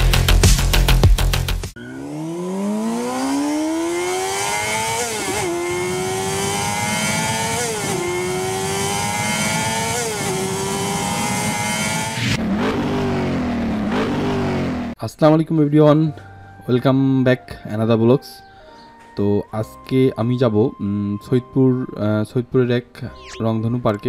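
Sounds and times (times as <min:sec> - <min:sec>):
vehicle engine accelerating: 0:01.7 - 0:15.0.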